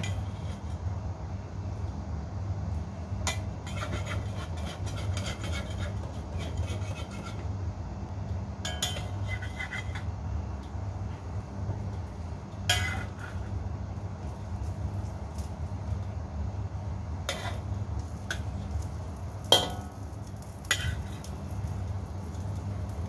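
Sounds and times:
metal spatula scraping a wok: 0.0 - 0.9, 3.2 - 7.5, 8.7 - 10.1, 12.7 - 13.6, 17.2 - 18.8, 19.4 - 21.4
sharp metal clank: 8.6 - 9.2, 19.5 - 20.0.

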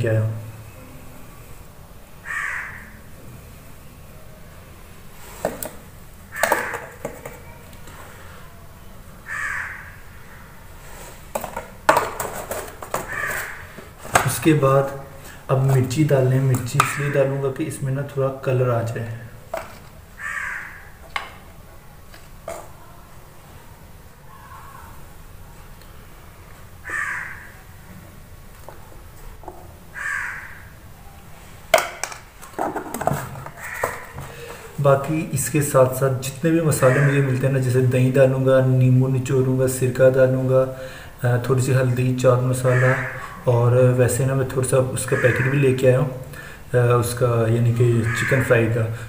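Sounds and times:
crow cawing: 2.2 - 3.0, 6.3 - 7.0, 9.2 - 10.6, 12.9 - 13.8, 16.8 - 17.3, 20.2 - 21.0, 26.8 - 27.7, 29.9 - 30.8, 33.5 - 34.5, 36.8 - 37.2, 42.6 - 43.4, 45.2 - 45.6, 48.0 - 48.6
kitchenware clicks and knocks: 11.4 - 13.5.

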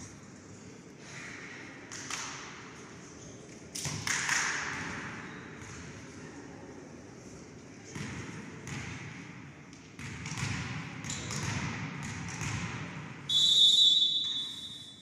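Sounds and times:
echoing sports hall noise: 0.0 - 15.0
referee's whistle blowing: 13.3 - 15.0.

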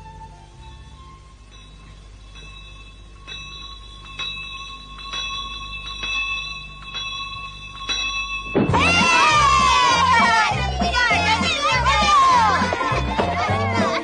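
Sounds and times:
bell striking: 0.6 - 11.1.

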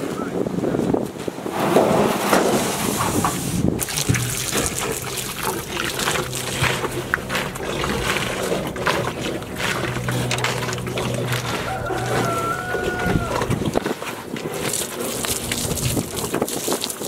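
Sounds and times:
water splashing into metal tank: 2.2 - 17.0
steady low hum: 3.3 - 16.2.

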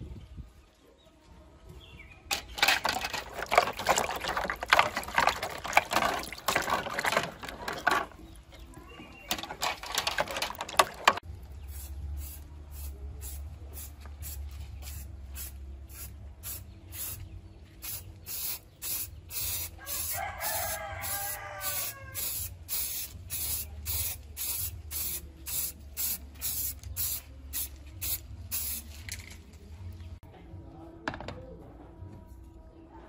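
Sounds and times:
spray paint can hissing: 11.6 - 29.4
rooster crowing: 19.8 - 22.4.

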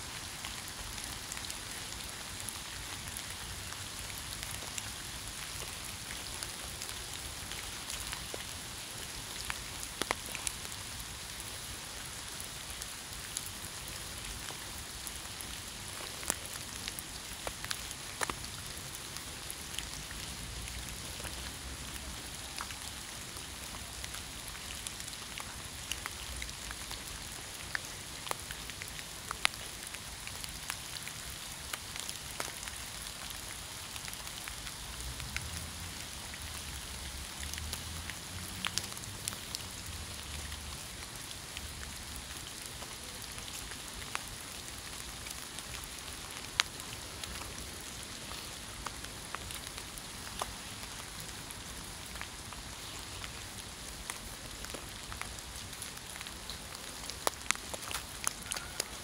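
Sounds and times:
steady rain hiss: 0.0 - 59.0
raindrop ticks: 9.3 - 10.6, 15.9 - 18.6, 23.6 - 33.4, 34.0 - 47.6, 48.2 - 51.3, 52.0 - 59.0.

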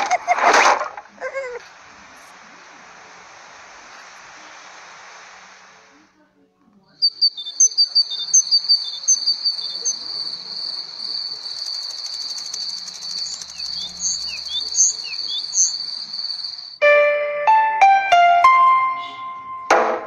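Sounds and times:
crickets chirping: 1.2 - 6.1, 6.9 - 16.8
short falling notes: 16.8 - 20.0.

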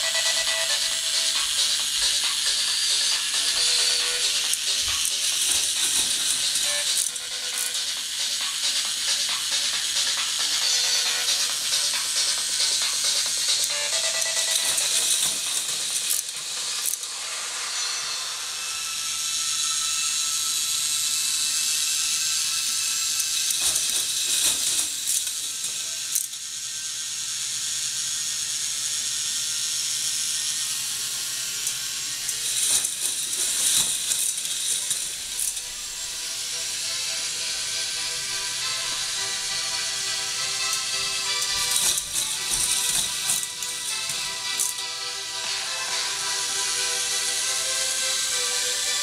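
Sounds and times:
plastic chain links clattering: 4.5 - 7.2, 13.4 - 17.0, 32.3 - 35.8, 41.4 - 44.8.

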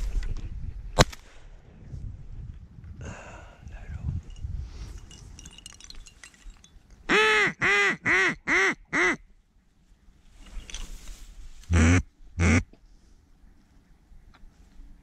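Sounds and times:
faint rustling: 9.7 - 11.7
duck quacking: 11.7 - 12.6.

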